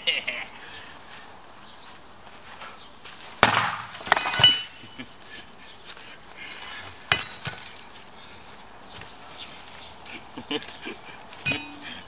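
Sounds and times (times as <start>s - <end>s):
rattling knocks with glassy ringing: 7.1s - 7.4s, 11.5s - 12.0s.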